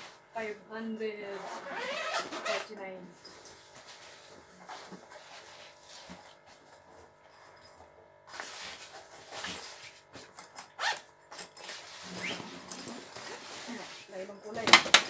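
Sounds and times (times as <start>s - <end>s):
nylon fabric rustling: 1.2s - 6.5s, 11.6s - 14.7s
zipper being opened: 1.3s - 2.7s, 10.8s - 11.1s, 12.0s - 14.0s.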